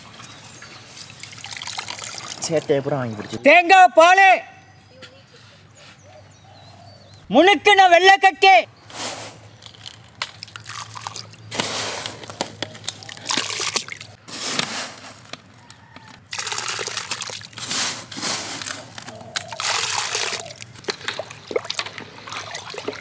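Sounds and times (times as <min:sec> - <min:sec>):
liquid sloshing in a steel bowl: 0:19.3 - 0:23.0.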